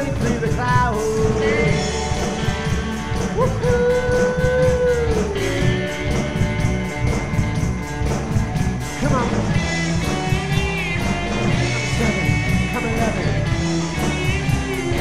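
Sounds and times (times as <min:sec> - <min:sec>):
person singing: 0:00.0 - 0:06.4
bending guitar notes: 0:00.0 - 0:15.0
cymbal beat: 0:00.0 - 0:15.0
live rock band playing: 0:00.0 - 0:15.0.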